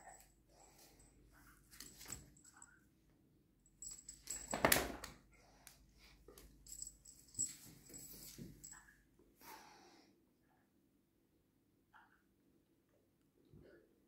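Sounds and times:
metallic jingling: 3.8 - 4.7, 6.6 - 8.8.

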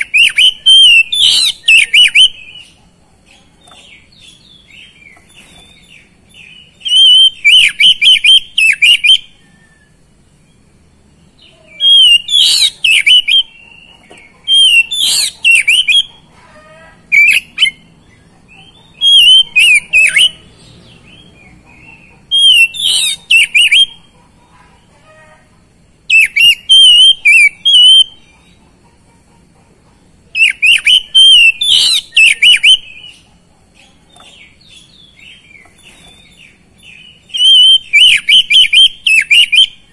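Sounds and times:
bird singing whistled phrases: 0.0 - 2.7, 6.4 - 10.0, 11.7 - 13.7, 14.5 - 16.1, 19.0 - 20.5, 22.3 - 24.0, 26.1 - 28.2, 30.4 - 33.2, 37.1 - 39.9.

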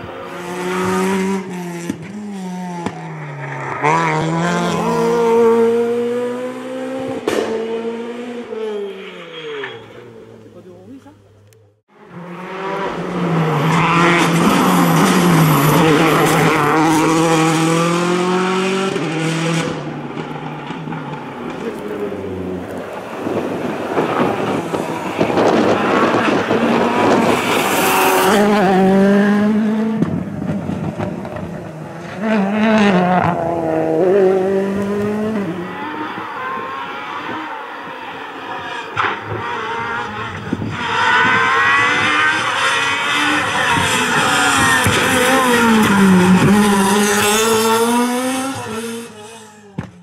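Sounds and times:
rally car engines revving: 0.0 - 50.0.

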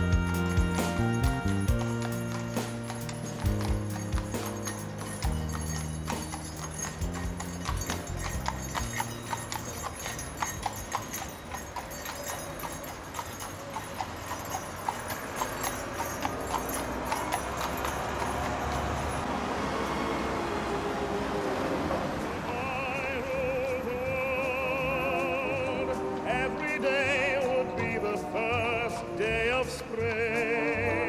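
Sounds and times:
horse hooves on tarmac: 0.0 - 19.4.

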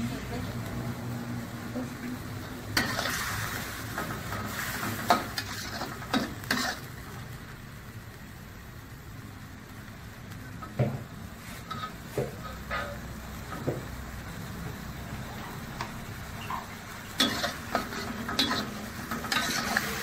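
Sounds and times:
oil sizzling: 0.0 - 20.0
metal spatula scraping a wok: 2.7 - 6.9, 11.4 - 13.1, 16.4 - 20.0.

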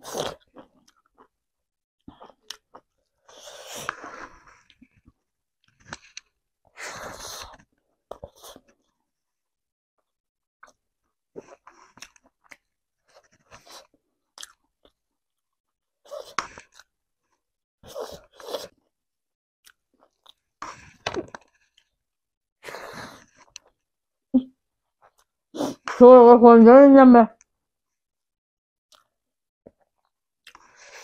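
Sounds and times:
close-miked chewing: 11.4 - 15.0, 29.7 - 31.0.

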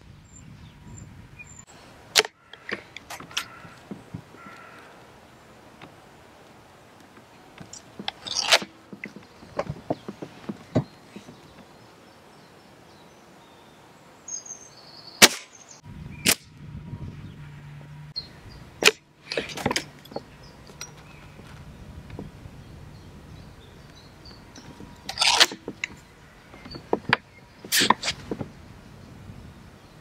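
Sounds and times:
air rifle shot: 15.2 - 15.6.

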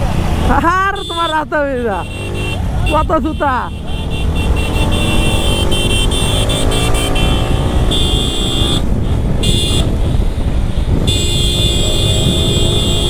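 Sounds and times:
wind rushing on microphone: 3.8 - 13.0.

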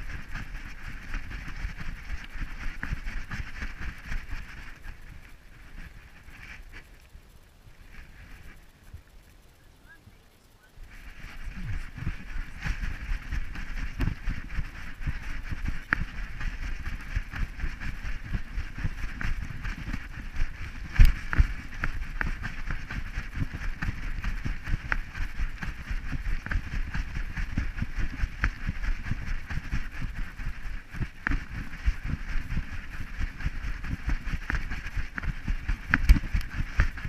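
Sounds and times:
wind on microphone: 0.0 - 37.0
rhythmic bumping and rubbing: 10.8 - 37.0.

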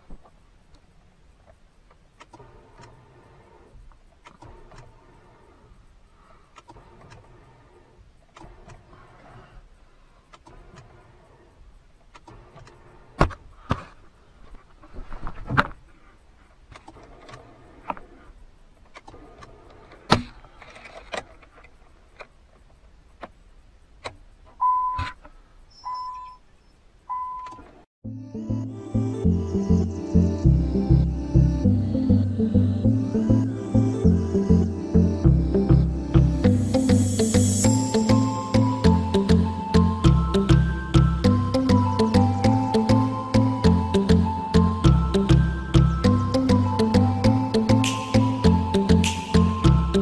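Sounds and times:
short even beeps: 27.1 - 27.6.

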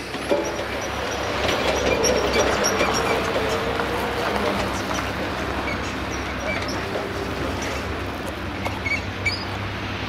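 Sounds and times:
low vehicle hum: 0.0 - 10.0
short high squeaks: 4.7 - 7.9, 8.8 - 9.6.

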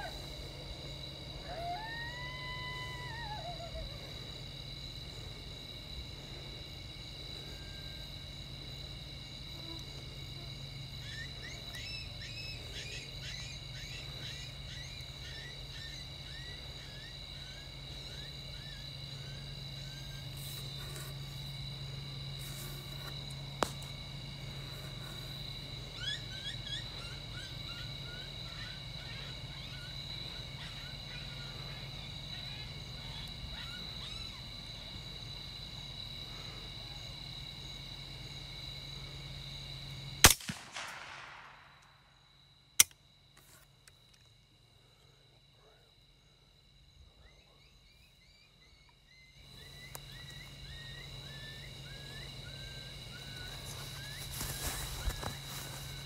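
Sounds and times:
night insects trilling: 0.0 - 56.0
sharp click: 42.8 - 43.0.

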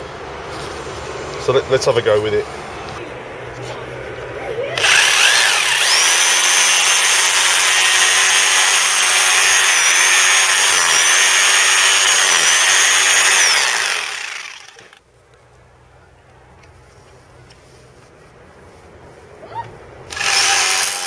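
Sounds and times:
rotary hammer drill chipping mortar: 4.8 - 15.0, 20.1 - 21.0.

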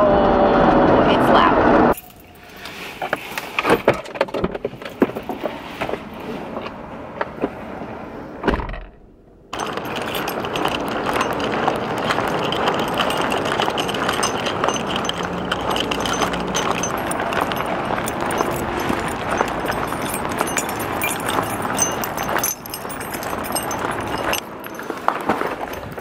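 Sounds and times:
road and wind noise in car: 0.0 - 26.0
small rattles and clicks: 9.6 - 26.0.

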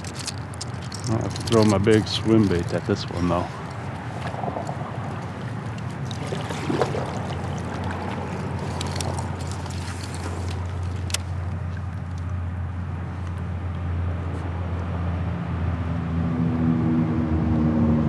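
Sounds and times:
fishing gear clicks: 0.0 - 12.4
water sloshing around kayak: 0.0 - 13.0
steady low rumble: 0.0 - 15.6.

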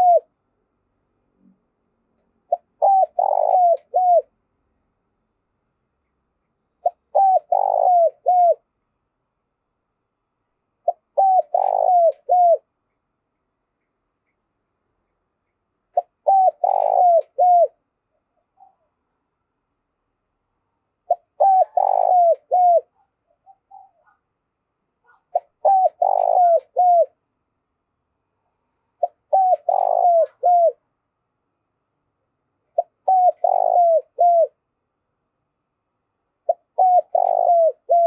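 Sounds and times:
dove cooing: 0.0 - 0.3, 2.5 - 4.3, 6.8 - 8.7, 10.8 - 12.7, 15.9 - 19.0, 21.0 - 24.3, 25.0 - 27.2, 29.0 - 30.8, 32.7 - 34.6, 36.4 - 38.0.

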